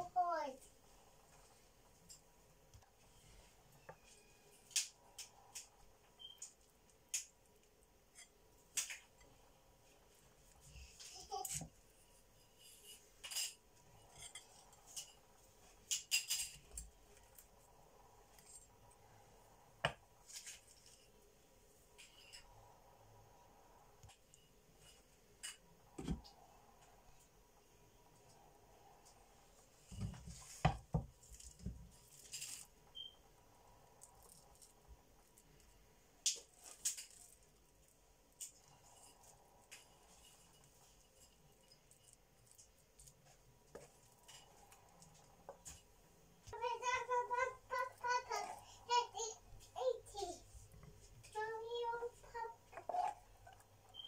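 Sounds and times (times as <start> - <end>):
spoon scraping mashed potato: 52.2 - 54.0.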